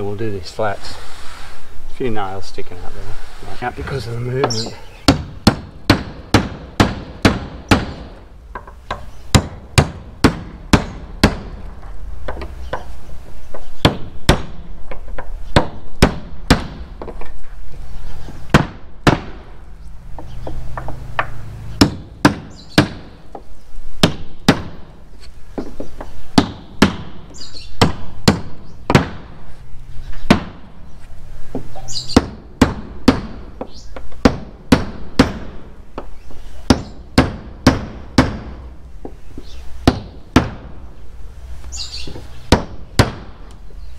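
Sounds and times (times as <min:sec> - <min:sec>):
hammer striking nails into wood: 0:04.4 - 0:11.6, 0:13.5 - 0:17.2, 0:18.5 - 0:19.5, 0:20.2 - 0:24.9, 0:25.6 - 0:29.3, 0:31.5 - 0:36.1, 0:36.7 - 0:38.6, 0:39.8 - 0:40.7, 0:42.5 - 0:43.4.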